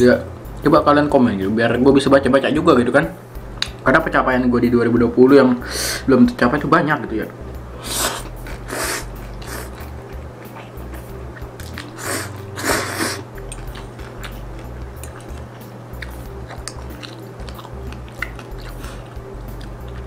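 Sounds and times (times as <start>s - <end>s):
noodles slurped and chewed: 11.6s - 20.0s.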